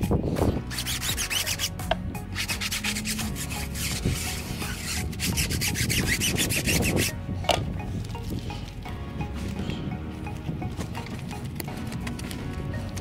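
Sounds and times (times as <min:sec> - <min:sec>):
stiff brush scrubbing a tire: 0:00.4 - 0:07.2.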